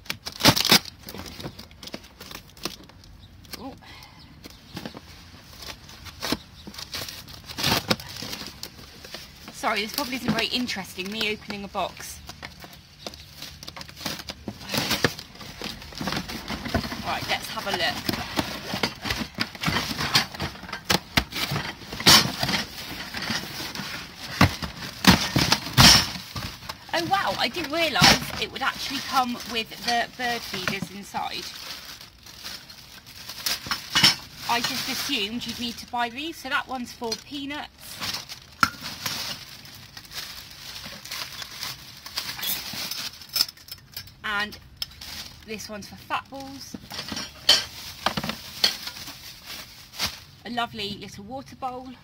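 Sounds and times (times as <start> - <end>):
plastic bag rustling and crinkling: 0.0 - 3.7, 4.5 - 50.9
cardboard crackles: 4.5 - 43.3.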